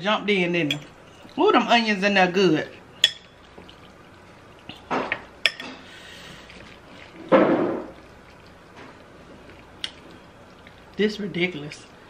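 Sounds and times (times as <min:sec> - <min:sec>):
slurping and chewing: 0:03.2 - 0:11.0.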